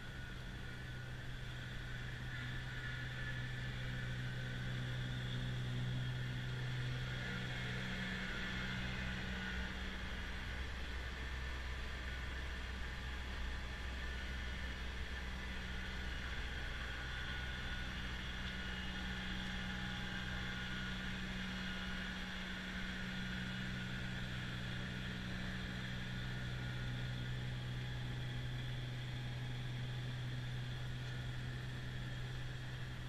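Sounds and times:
snowblower running: 0:00.0 - 0:33.0.

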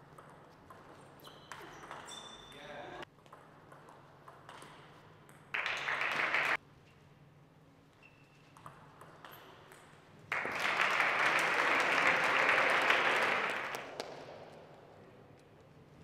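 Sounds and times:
applause: 0:05.5 - 0:06.6, 0:10.3 - 0:14.4.

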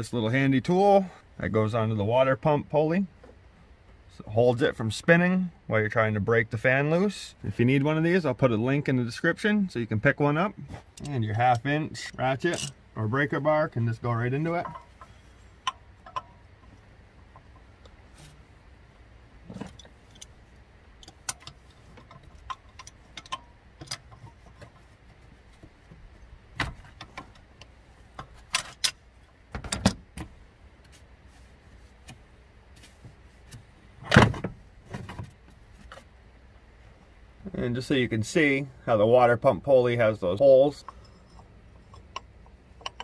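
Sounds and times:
hand tools clanking on metal: 0:10.9 - 0:12.8, 0:14.4 - 0:17.7, 0:40.6 - 0:43.0.

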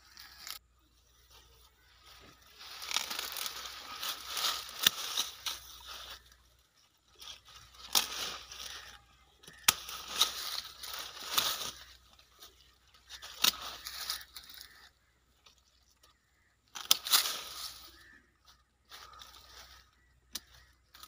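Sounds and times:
leafy branches rustling: 0:00.0 - 0:21.0
pruning shears snipping: 0:02.6 - 0:06.4, 0:07.1 - 0:14.8, 0:15.4 - 0:17.9, 0:20.3 - 0:21.0.

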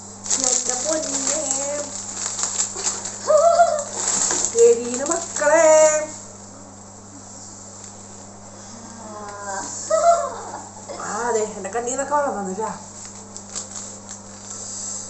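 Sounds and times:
low electrical hum: 0:00.0 - 0:15.0
foil snack packet crinkling: 0:00.2 - 0:06.1, 0:13.0 - 0:14.6.

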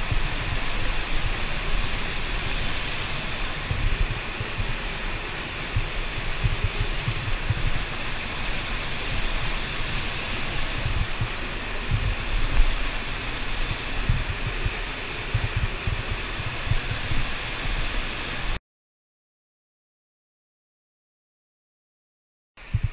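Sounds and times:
cave river rushing: 0:00.0 - 0:18.6
low rumbling: 0:00.0 - 0:18.6.

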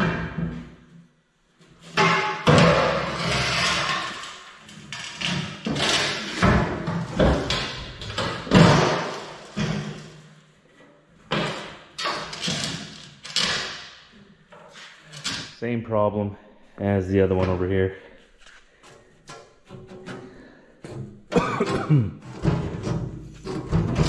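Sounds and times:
metal boxes clanking on concrete: 0:19.8 - 0:24.0.

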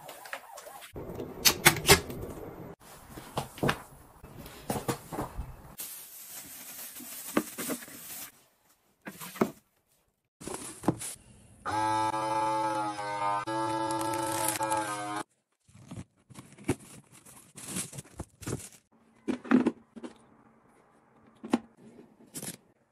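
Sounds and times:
household objects being handled: 0:00.0 - 0:11.3, 0:15.4 - 0:20.4.

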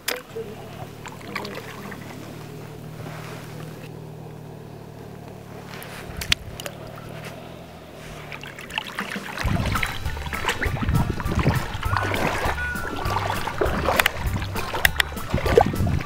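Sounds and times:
fish splashing into water: 0:00.0 - 0:03.9, 0:08.0 - 0:16.0
water splashing in a bucket: 0:00.0 - 0:03.9, 0:08.0 - 0:16.0
distant motorboat engine hum: 0:00.0 - 0:16.0.

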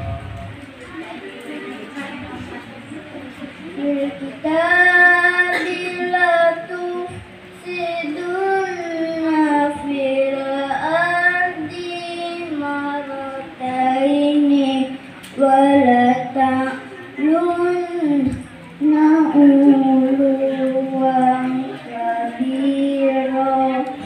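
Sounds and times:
boy reciting melodically: 0:00.0 - 0:24.0.

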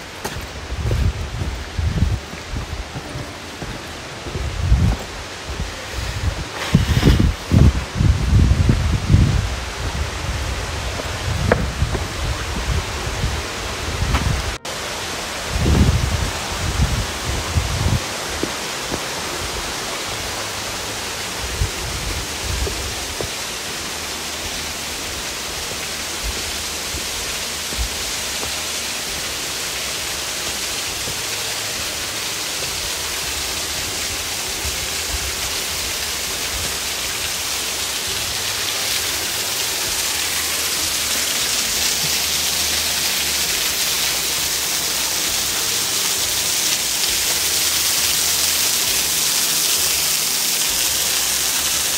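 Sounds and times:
running water rushing: 0:00.0 - 0:51.9
low thumps: 0:10.9 - 0:12.8.

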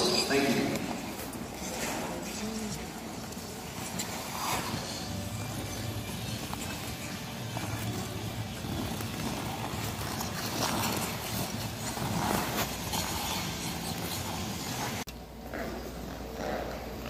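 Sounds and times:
skate blades scraping on ice: 0:03.4 - 0:15.0.

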